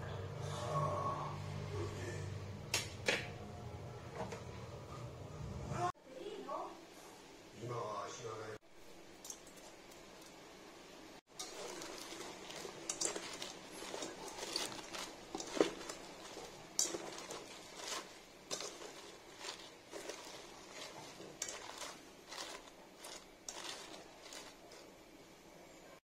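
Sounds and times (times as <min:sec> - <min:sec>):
lettuce rustling: 0:11.3 - 0:25.0.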